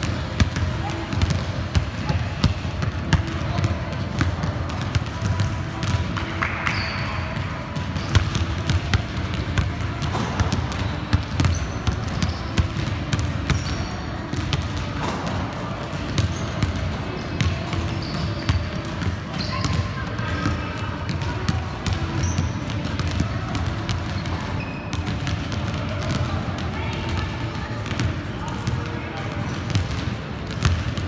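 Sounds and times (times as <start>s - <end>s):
basketballs bouncing on hardwood: 7.8s - 26.4s, 29.7s - 31.0s.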